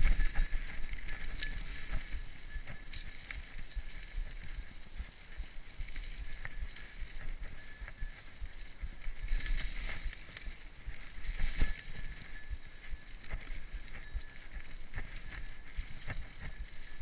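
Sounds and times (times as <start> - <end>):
bike tyres on leaves and dirt: 0.0 - 17.0.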